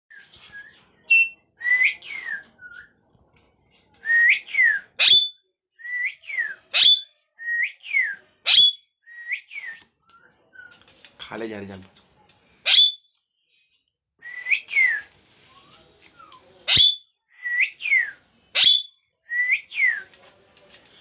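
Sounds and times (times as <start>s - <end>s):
parakeet whistling: 0.6s - 2.9s, 4.1s - 10.7s, 12.6s - 13.1s, 16.6s - 20.0s
parakeet sharp upward squeak: 1.1s - 1.4s, 5.0s - 5.3s, 6.8s - 7.1s, 8.5s - 8.8s, 12.7s - 13.0s, 16.7s - 17.0s, 18.6s - 18.9s.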